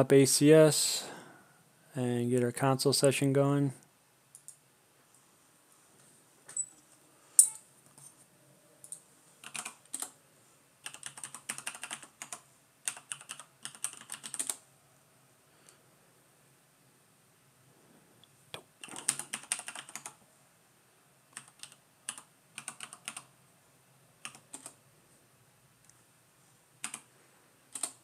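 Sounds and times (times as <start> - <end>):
computer keyboard typing: 9.4 - 10.2, 10.8 - 14.6, 18.6 - 20.2, 21.3 - 23.3, 24.2 - 24.8, 26.8 - 27.1, 27.7 - 28.0.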